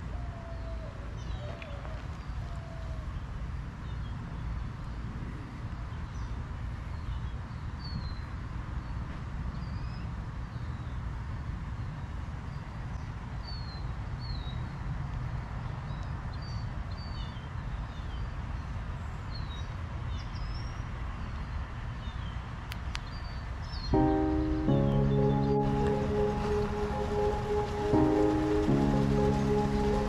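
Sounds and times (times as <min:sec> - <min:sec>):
music: 0:23.9 - 0:30.0
steady low rumble: 0:24.0 - 0:30.0.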